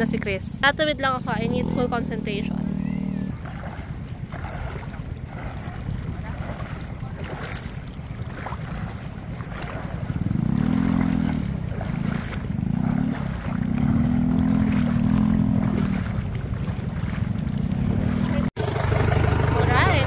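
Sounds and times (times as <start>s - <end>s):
motorcycle engine revving: 0.0s - 20.0s
stream water splashing around legs: 3.2s - 18.6s.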